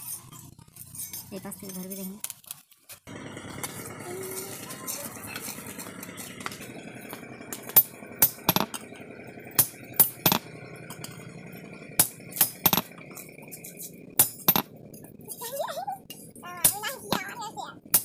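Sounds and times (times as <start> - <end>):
sledgehammer clanking on metal: 4.8 - 18.0.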